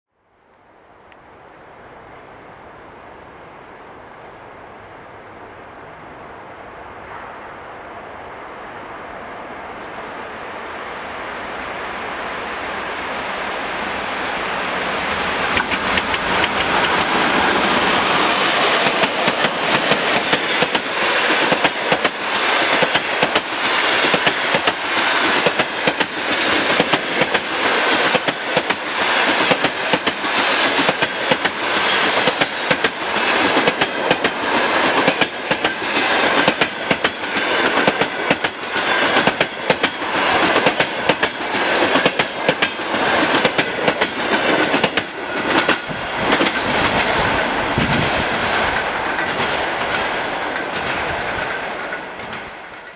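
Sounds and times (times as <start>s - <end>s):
train carriages rushing past: 6.5s - 52.9s
wheels clacking over rail joints: 15.0s - 52.9s.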